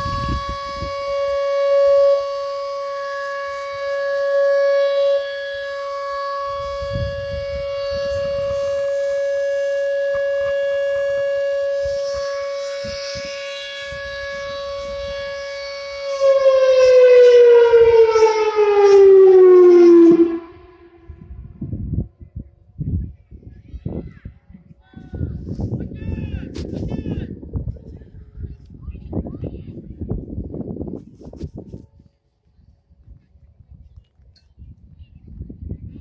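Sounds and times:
rotating warning siren: 0:00.0 - 0:22.0.

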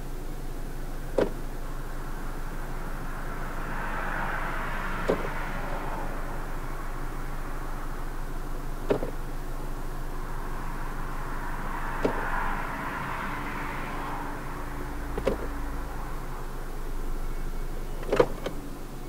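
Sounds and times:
car engine idling: 0:00.0 - 0:19.0
gear selector clicking: 0:08.8 - 0:09.2, 0:12.0 - 0:12.2, 0:18.0 - 0:18.6.

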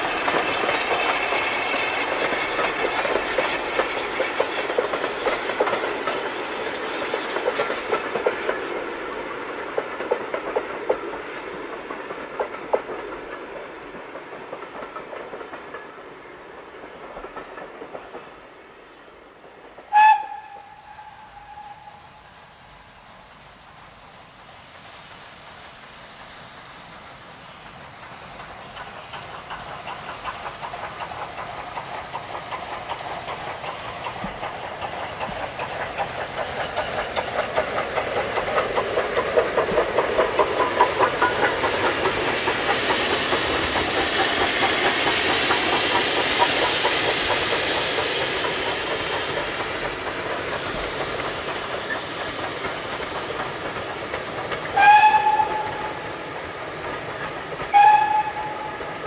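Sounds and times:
steam locomotive exhaust beats: 0:00.0 - 0:59.0
train coaches rolling by: 0:00.0 - 0:59.0
steam locomotive whistle: 0:19.9 - 0:22.4, 0:54.7 - 0:56.1, 0:57.7 - 0:59.0.

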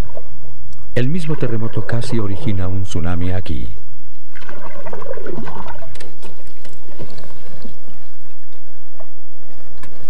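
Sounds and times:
water and mud sloshing: 0:04.3 - 0:09.1.

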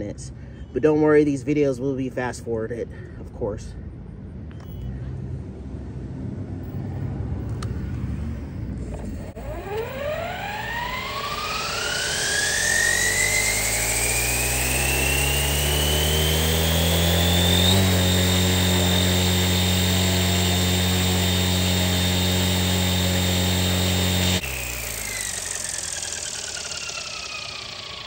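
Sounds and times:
rc helicopter motor whine: 0:07.5 - 0:28.0.

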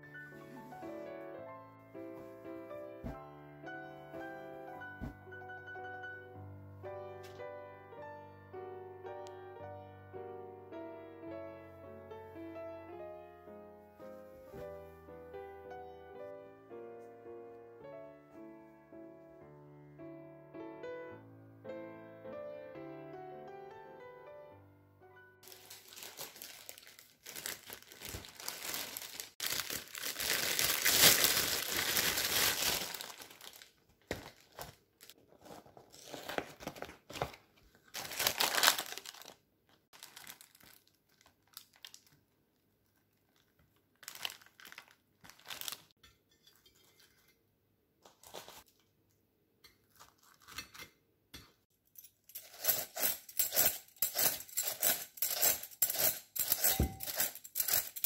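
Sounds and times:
plastic and cardboard packaging rustling: 0:25.4 - 0:42.2, 0:42.8 - 0:46.0, 0:48.0 - 0:48.8.

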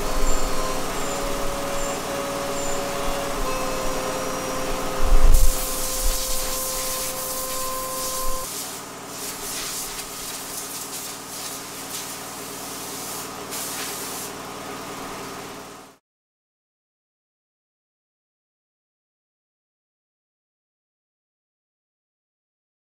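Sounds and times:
air compressor motor humming: 0:00.0 - 0:16.0
compressed air hissing from air gun: 0:05.1 - 0:14.4.

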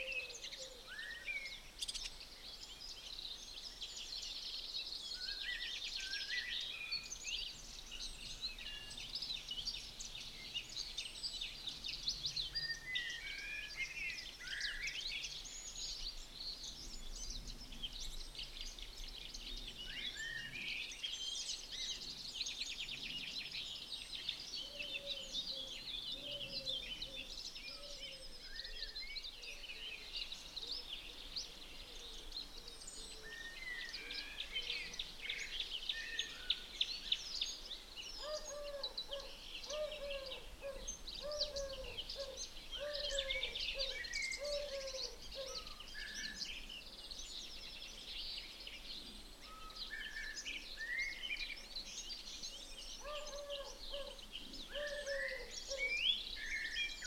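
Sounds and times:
birds chirping and trilling: 0:00.0 - 0:57.0
low repeated bird call: 0:38.2 - 0:46.6, 0:53.0 - 0:57.0.

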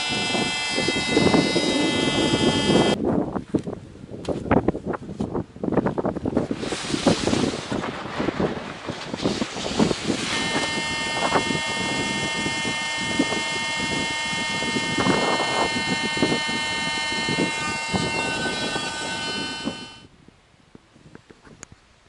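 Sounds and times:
electric air pump whining: 0:00.0 - 0:03.0, 0:10.1 - 0:20.1.

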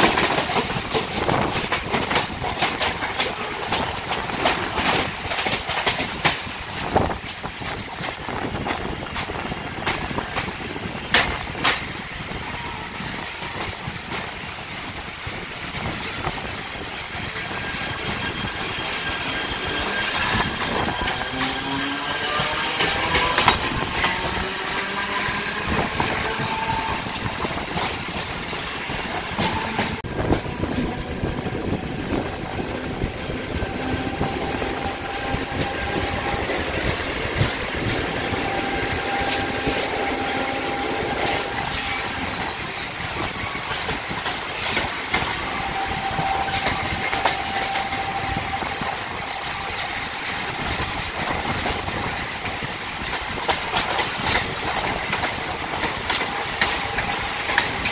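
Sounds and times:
train wheels clattering: 0:00.0 - 0:57.9.

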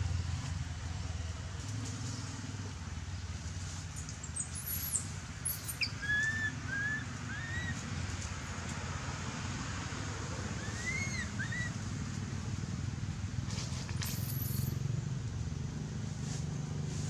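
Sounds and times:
short whistled calls: 0:04.3 - 0:07.8, 0:10.6 - 0:11.8
thin high squeaks: 0:13.9 - 0:14.7.

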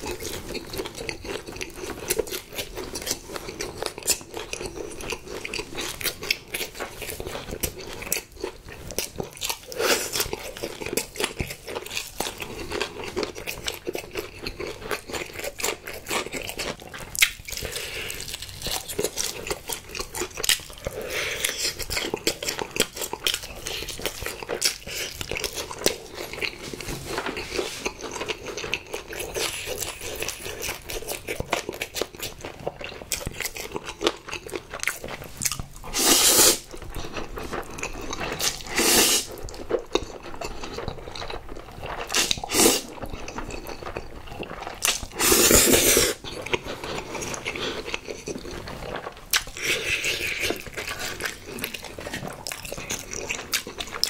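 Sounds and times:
chewing and crunching fried chicken: 0:00.0 - 0:54.0
slurping noodles: 0:35.8 - 0:36.7, 0:37.9 - 0:39.5, 0:42.0 - 0:43.2, 0:44.9 - 0:52.3.

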